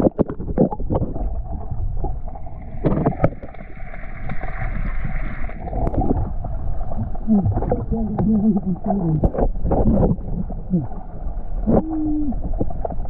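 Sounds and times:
underwater clicks and pops: 0:00.0 - 0:01.3, 0:02.8 - 0:03.6, 0:07.0 - 0:10.5
underwater rumble: 0:00.0 - 0:13.0.

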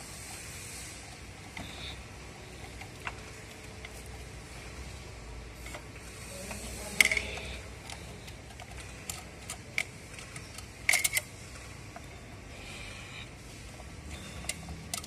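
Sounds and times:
screwdriver clicking on metal screws: 0:06.5 - 0:11.3.

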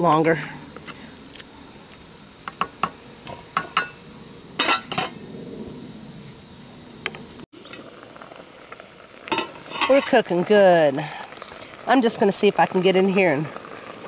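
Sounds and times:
pot lid ringing clatter: 0:04.6 - 0:05.1.

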